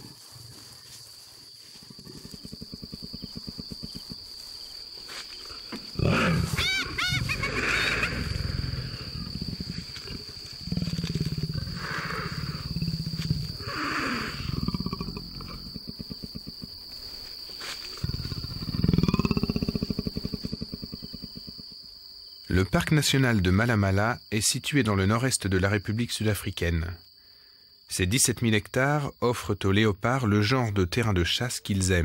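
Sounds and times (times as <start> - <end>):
high wavering cries: 6.0 - 9.3
leopard growling and snarling: 6.0 - 16.8, 18.0 - 21.6.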